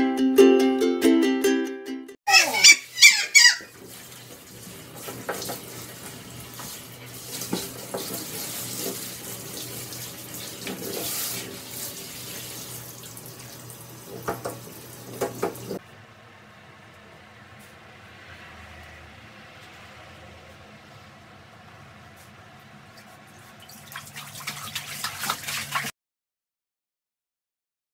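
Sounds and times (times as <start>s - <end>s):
high sliding squeals: 2.3s - 3.7s
shower water spraying: 2.8s - 15.8s, 23.0s - 25.9s.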